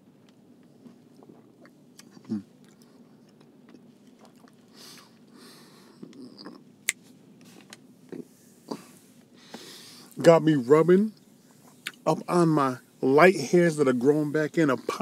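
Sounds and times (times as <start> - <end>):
breath: 4.7 - 6.0, 8.7 - 10.2.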